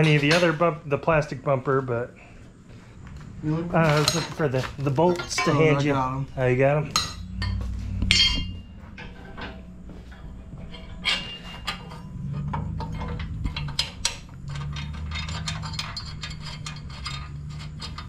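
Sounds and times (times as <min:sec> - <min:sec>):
low steady hum: 0:00.0 - 0:18.0
metal bolts clinking: 0:03.8 - 0:06.2, 0:06.8 - 0:18.0.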